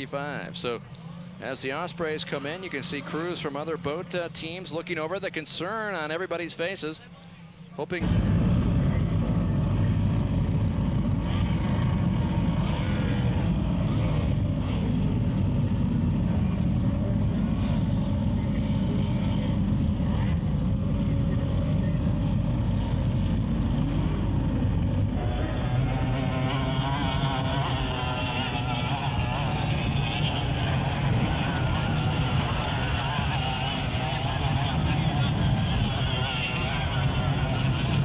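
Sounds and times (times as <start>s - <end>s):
powerboat engines droning: 0.0s - 38.0s
passing boat engine: 8.0s - 38.0s.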